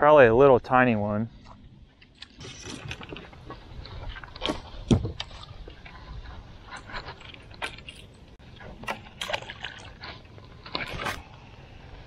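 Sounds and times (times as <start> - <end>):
fishing gear and hull knocks: 2.0 - 6.0.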